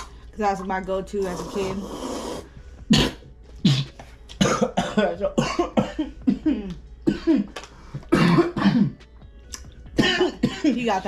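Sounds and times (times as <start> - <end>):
person coughing: 2.9 - 9.0, 10.0 - 10.8.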